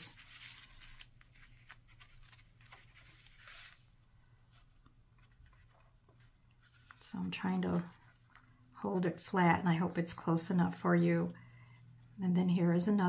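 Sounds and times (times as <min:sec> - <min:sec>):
paper pages rustling: 0:00.0 - 0:08.6.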